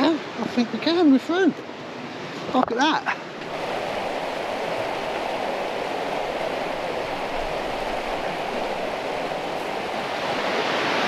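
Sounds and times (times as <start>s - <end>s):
river rushing over rocks: 3.4s - 11.0s.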